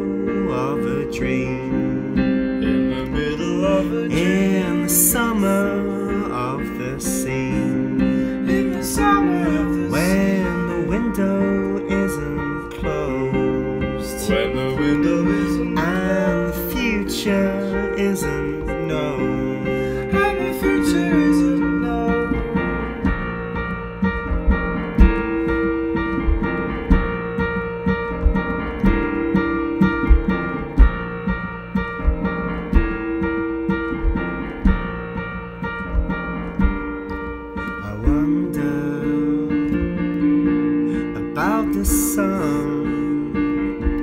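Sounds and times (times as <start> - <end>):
person's voice: 0.0 - 22.8, 37.8 - 39.8, 41.2 - 43.4
electric piano chords: 0.0 - 44.0.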